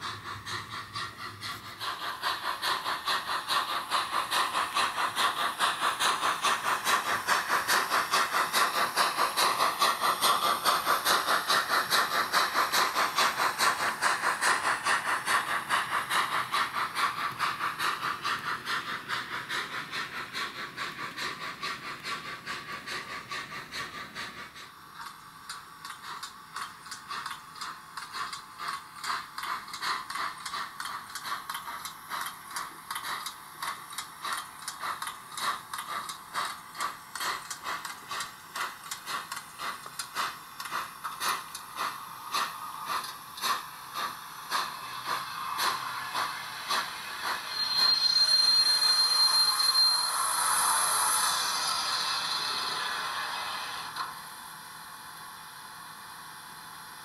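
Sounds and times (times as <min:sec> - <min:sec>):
steam hiss: 0:00.0 - 0:57.0
steam locomotive exhaust chuffs: 0:00.0 - 0:57.0
high thin squeal: 0:45.2 - 0:53.4.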